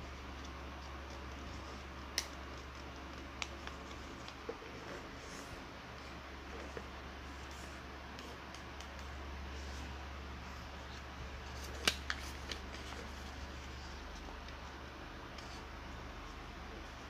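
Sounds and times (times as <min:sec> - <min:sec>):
steady low hum: 0:00.0 - 0:17.0
paper rustling: 0:10.5 - 0:14.6
crisp paper clicks: 0:11.5 - 0:13.1.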